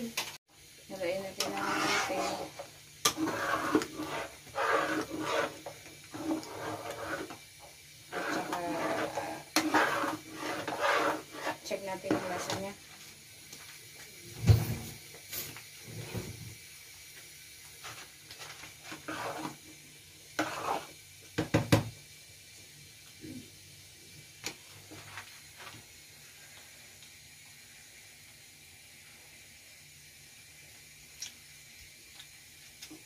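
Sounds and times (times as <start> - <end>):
metal spoon stirring stew in pan: 1.4 - 7.4, 8.1 - 12.6, 18.8 - 19.6, 20.4 - 20.9.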